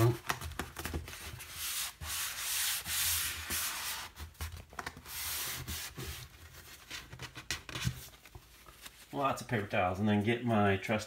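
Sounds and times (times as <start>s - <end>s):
hand rubbing vinyl flooring: 1.0s - 9.0s.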